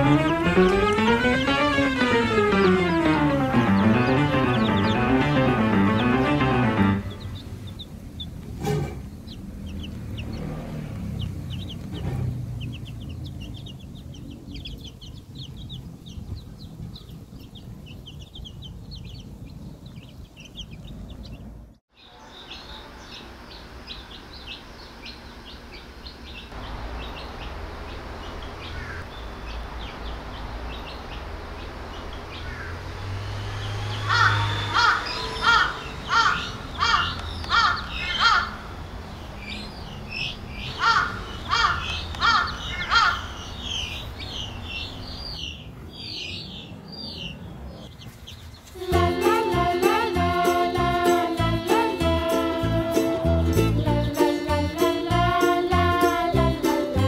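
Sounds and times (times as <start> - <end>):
chicks peeping: 0.0 - 32.9, 33.5 - 57.0
louder harsher chick calls: 33.6 - 38.7, 39.5 - 45.3.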